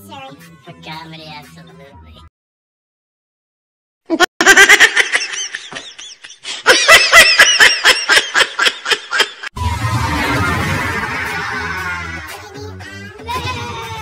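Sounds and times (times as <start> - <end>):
person laughing: 4.1 - 9.5.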